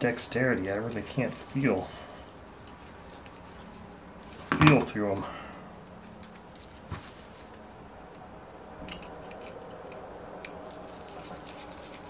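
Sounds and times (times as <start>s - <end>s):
light metallic clicks of tools: 5.9s - 6.8s, 8.1s - 10.8s.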